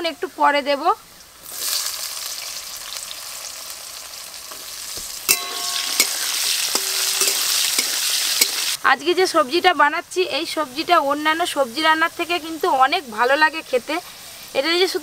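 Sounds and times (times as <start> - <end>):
potatoes sizzling in hot oil: 0.2 - 15.0
metal spatula scraping pan: 5.3 - 8.8.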